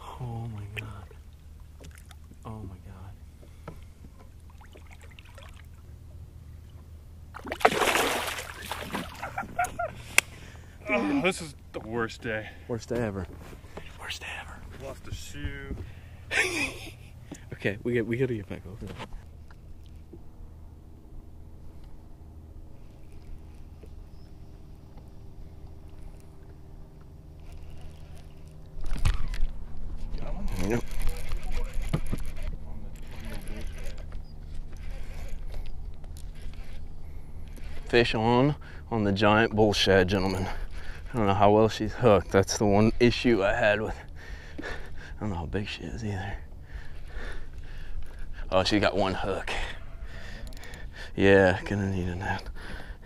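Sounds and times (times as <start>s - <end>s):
faint water trickling: 0.0s - 6.8s
boat motor humming: 0.0s - 53.0s
loud water splash: 7.4s - 9.3s.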